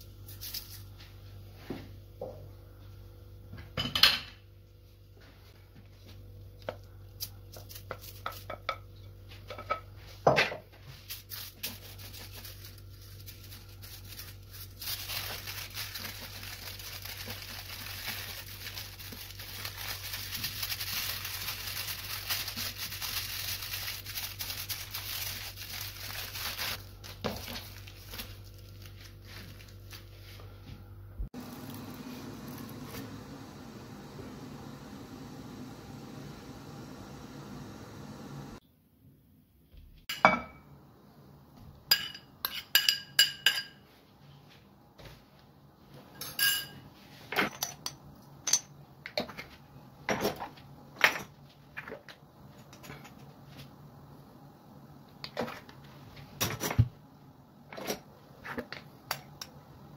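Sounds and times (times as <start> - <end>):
aluminium foil crinkling: 0.2 - 0.9, 7.2 - 8.6, 11.0 - 30.4
steady low hum: 26.1 - 38.6.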